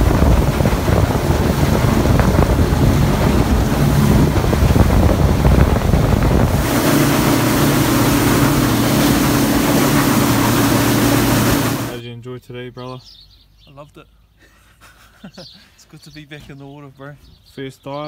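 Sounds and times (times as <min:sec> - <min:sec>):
outboard motor running: 0:00.0 - 0:12.0
water rushing past hull: 0:00.0 - 0:12.0
wind buffeting microphone: 0:00.0 - 0:12.0.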